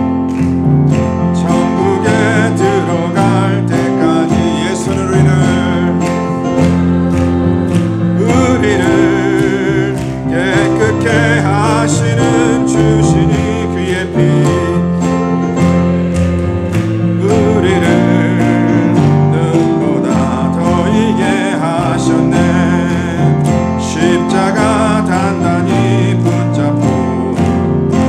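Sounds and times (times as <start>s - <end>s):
hymn singing with accompaniment: 0.0s - 28.0s.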